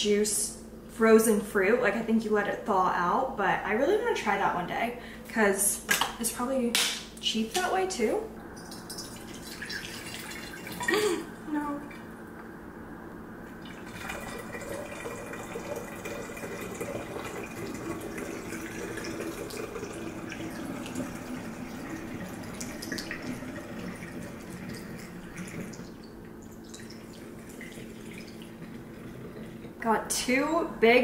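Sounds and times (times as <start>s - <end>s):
juice trickling into bottle: 8.6s - 11.1s, 13.6s - 29.6s.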